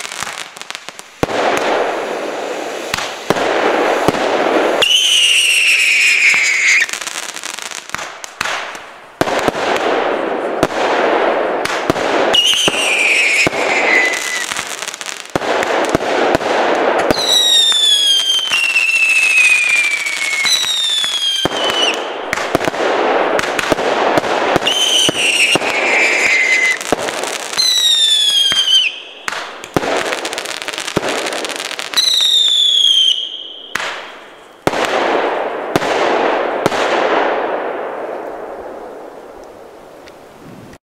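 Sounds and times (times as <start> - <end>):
firework launch pops: 0.0 - 6.9, 7.9 - 10.0, 11.6 - 18.6, 31.9 - 35.2
falling firework whistles: 0.0 - 8.6, 12.2 - 15.2, 17.0 - 22.7, 24.6 - 34.8
firework crackling: 0.0 - 40.8.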